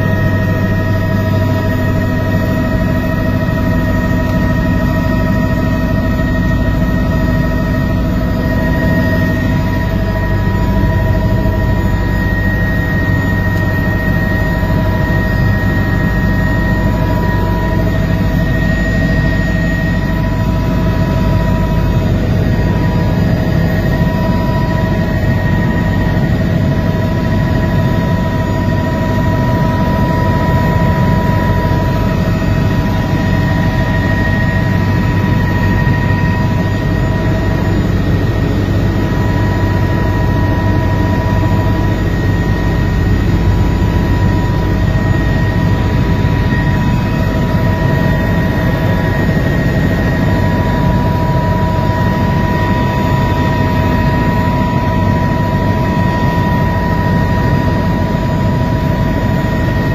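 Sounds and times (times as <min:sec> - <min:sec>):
helicopter rotor and engine noise: 0:00.0 - 0:59.9
steady whining tones: 0:00.0 - 0:59.9.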